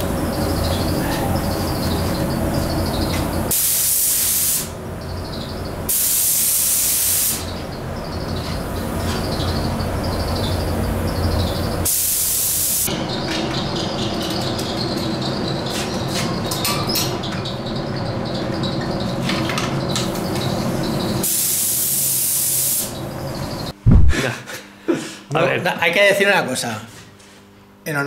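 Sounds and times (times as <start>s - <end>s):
sharp bursts of spray: 3.5s - 4.8s, 5.9s - 7.5s, 11.8s - 12.9s, 21.2s - 22.9s
spray gun hissing: 3.5s - 4.8s, 5.9s - 7.5s, 11.8s - 12.9s, 21.2s - 22.9s.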